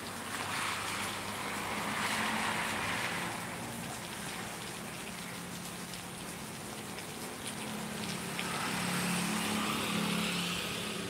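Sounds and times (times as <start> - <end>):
car tyres hissing on wet road: 0.0 - 4.9, 7.7 - 11.0
steady rain falling: 0.0 - 11.0.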